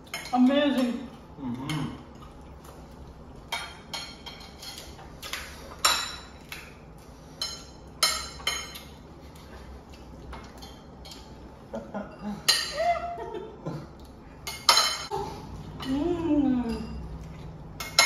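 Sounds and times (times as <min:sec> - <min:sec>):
spoons clinking on plates: 0:03.5 - 0:06.5, 0:07.4 - 0:09.0, 0:12.1 - 0:12.8, 0:14.4 - 0:15.1, 0:17.8 - 0:18.0.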